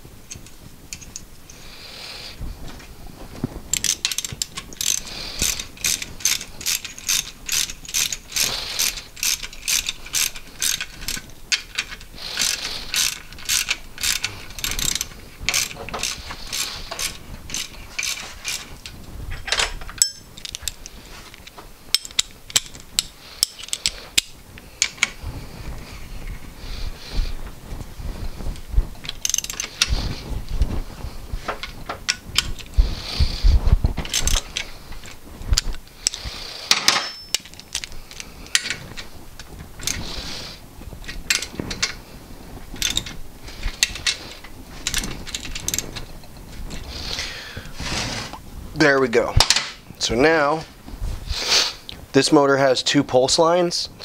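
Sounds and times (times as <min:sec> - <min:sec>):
ratchet wrench clicking: 0:03.7 - 0:18.7, 0:29.2 - 0:29.9, 0:34.1 - 0:34.7, 0:42.8 - 0:43.1, 0:44.8 - 0:45.8.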